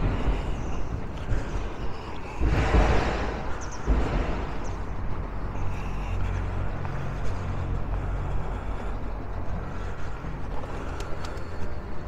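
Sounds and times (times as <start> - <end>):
street noise: 0.0 - 12.0.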